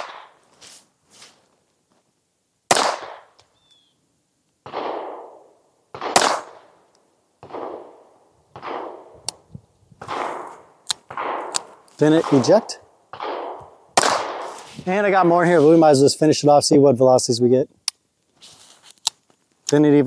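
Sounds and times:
pistol shots cracking: 0:00.0 - 0:00.4, 0:02.7 - 0:03.4, 0:04.6 - 0:06.8, 0:07.4 - 0:09.2, 0:10.0 - 0:14.6.

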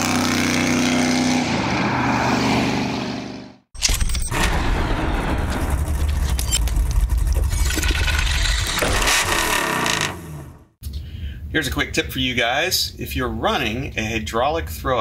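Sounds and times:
deep rumble with crackles: 0:04.3 - 0:10.2.

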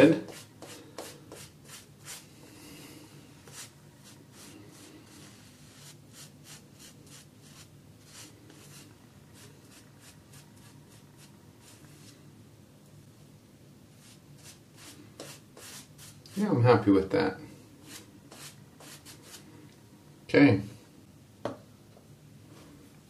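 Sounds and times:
shaving brush scratching: 0:00.0 - 0:02.3, 0:03.4 - 0:12.1, 0:14.0 - 0:16.4, 0:17.9 - 0:19.4.

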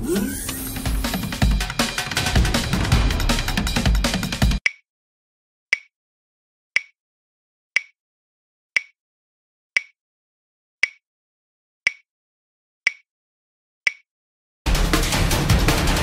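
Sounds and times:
timer ticking: 0:04.6 - 0:04.8, 0:05.7 - 0:05.9, 0:06.8 - 0:07.0, 0:07.8 - 0:08.0, 0:08.8 - 0:09.0, 0:09.8 - 0:10.0, 0:10.8 - 0:11.0, 0:13.9 - 0:14.1.

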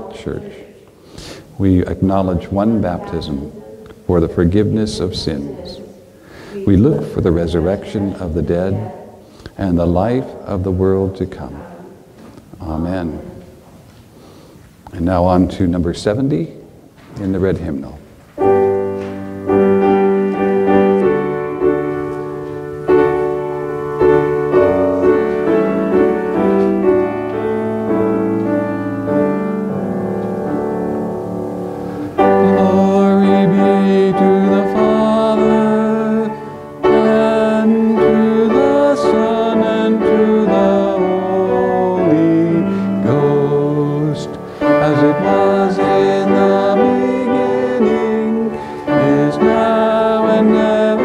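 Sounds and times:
piano playing: 0:00.0 - 0:00.6, 0:01.6 - 0:09.0, 0:17.4 - 0:51.0
people singing hymn: 0:31.6 - 0:51.0.

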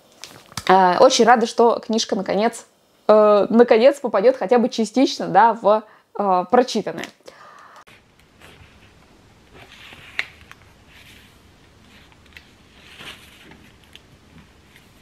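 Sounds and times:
book pages turning: 0:07.9 - 0:15.0.

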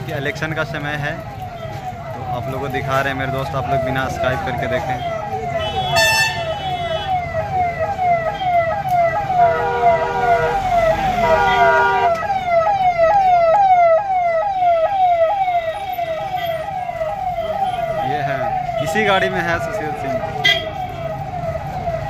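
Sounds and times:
rumble of engines: 0:00.0 - 0:14.2, 0:14.8 - 0:22.0
electronic siren yelping: 0:00.5 - 0:22.0
vehicle horns blaring: 0:05.6 - 0:07.2, 0:09.4 - 0:12.2, 0:20.4 - 0:21.0.

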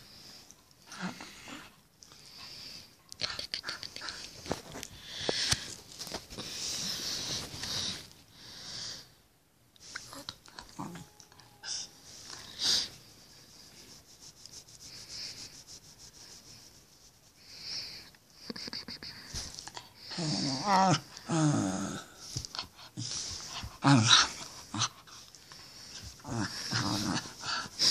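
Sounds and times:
rustling of fur and bedding: 0:04.3 - 0:08.3, 0:11.9 - 0:18.0, 0:22.1 - 0:27.9.

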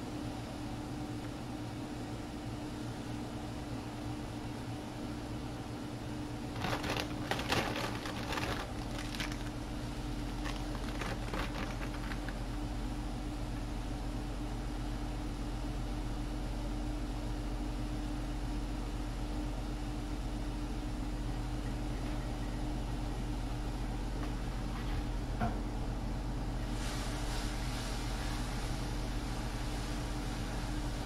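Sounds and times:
kitchen hum: 0:06.1 - 0:16.0, 0:21.9 - 0:31.0
packaging crinkling: 0:06.5 - 0:12.6.

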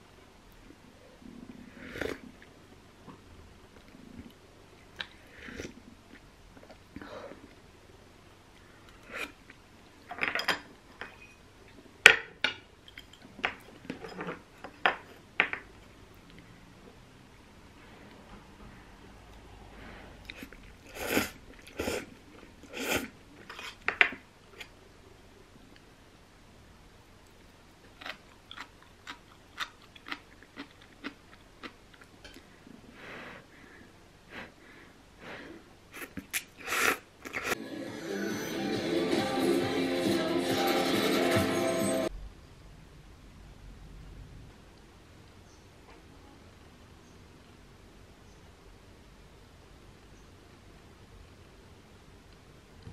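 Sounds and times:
slurping noodles: 0:01.6 - 0:02.4, 0:05.2 - 0:05.9, 0:20.2 - 0:23.8, 0:36.0 - 0:38.6
crunchy chewing: 0:27.8 - 0:32.5.

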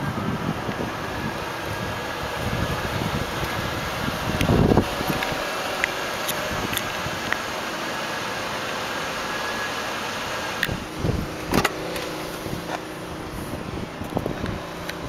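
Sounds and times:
steady background noise: 0:00.0 - 0:15.0
car door clunk: 0:11.4 - 0:12.9
car door latch click: 0:11.5 - 0:12.1.

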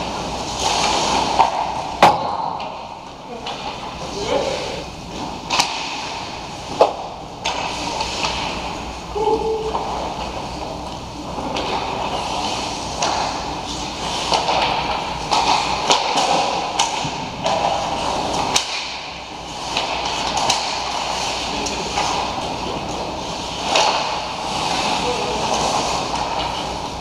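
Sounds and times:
skates scraping on ice: 0:00.0 - 0:02.8, 0:04.4 - 0:08.8, 0:11.3 - 0:27.0
hockey sticks and puck clacking: 0:00.0 - 0:08.8, 0:09.7 - 0:27.0.

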